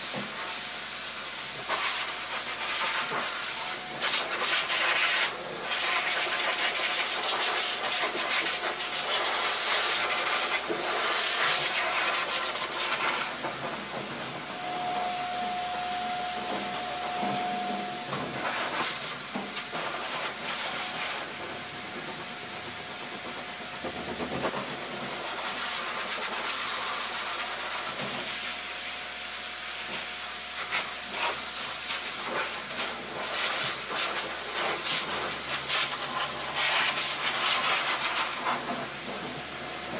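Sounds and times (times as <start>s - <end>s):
pet blow dryer rushing air: 0.1s - 39.9s
thin steady whistle: 14.2s - 19.3s.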